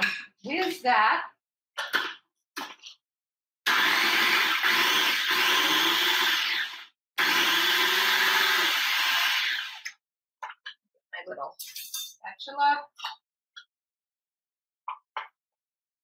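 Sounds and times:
electric blender whizzing: 0:03.7 - 0:09.9.

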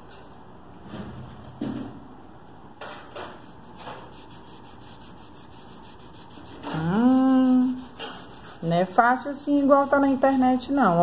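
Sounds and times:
sponge rubbing on wall: 0:03.4 - 0:11.0
woman's wordless vocal: 0:06.7 - 0:08.0.

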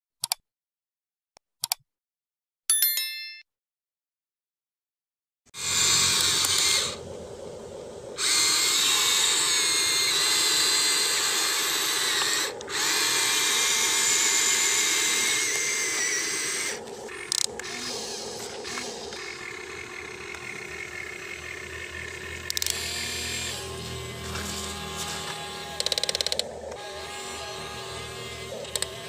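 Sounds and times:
small electric motors whining: 0:05.5 - 0:29.0.

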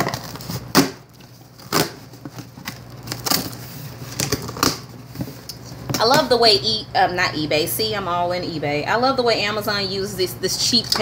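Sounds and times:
packing tape ripping off cardboard: 0:00.0 - 0:04.9.

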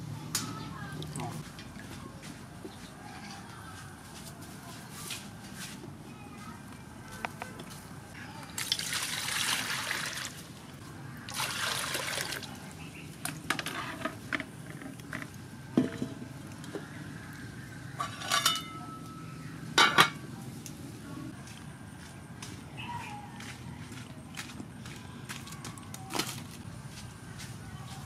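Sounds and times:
water pouring into a metal pot: 0:08.6 - 0:10.4, 0:11.3 - 0:12.5
metal lid clanking onto pot: 0:18.0 - 0:18.8.

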